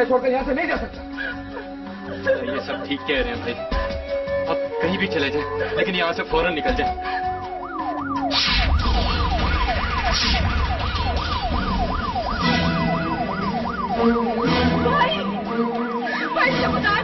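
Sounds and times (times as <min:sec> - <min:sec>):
siren wailing: 0:04.4 - 0:17.0.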